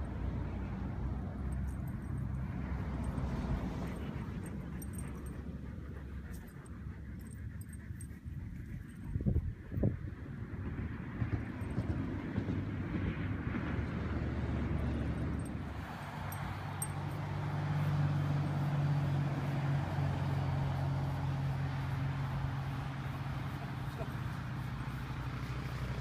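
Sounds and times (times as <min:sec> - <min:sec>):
wind rumble on microphone: 0:08.1 - 0:15.8.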